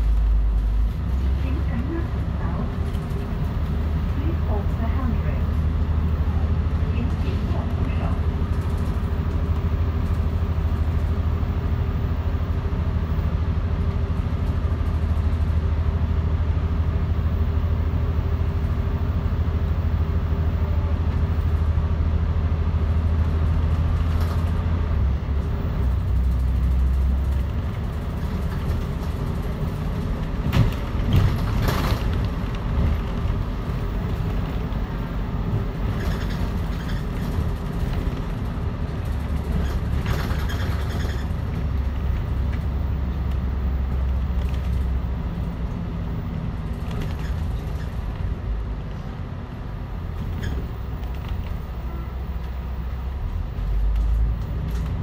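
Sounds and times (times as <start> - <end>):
bus diesel engine drone: 0.0 - 55.0.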